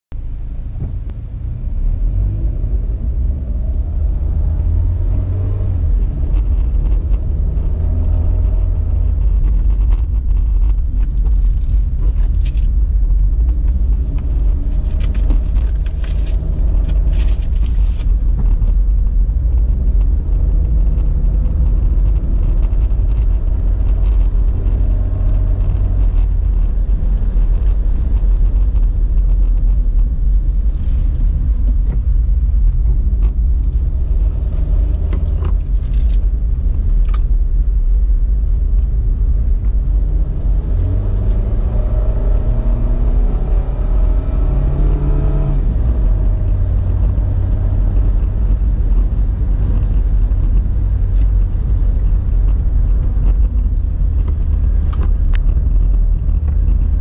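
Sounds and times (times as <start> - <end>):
car engine and road noise: 0.0 - 57.0
sharp ticks and rattles: 5.9 - 39.9.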